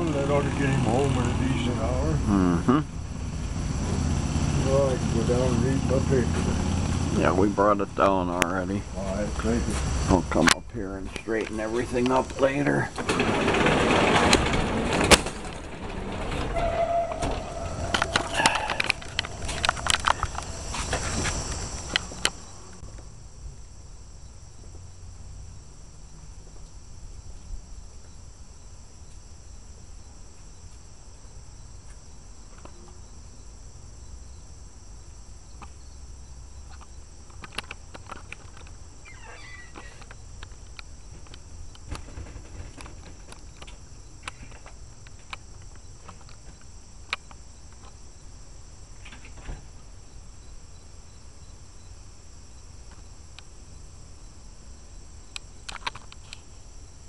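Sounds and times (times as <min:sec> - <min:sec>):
microphone handling rumble: 0:00.0 - 0:22.9
insects chorus: 0:00.0 - 0:57.0.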